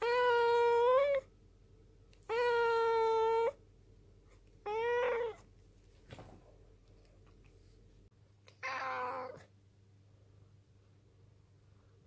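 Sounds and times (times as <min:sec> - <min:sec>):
cat meowing: 0:02.2 - 0:03.6, 0:04.6 - 0:05.5, 0:08.5 - 0:09.5.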